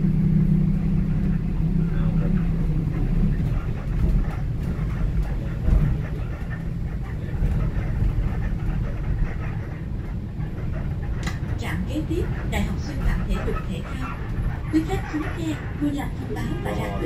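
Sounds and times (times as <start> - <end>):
bus engine running: 0.0 - 17.0
road rumble: 0.0 - 17.0
faint rattles: 1.2 - 17.0.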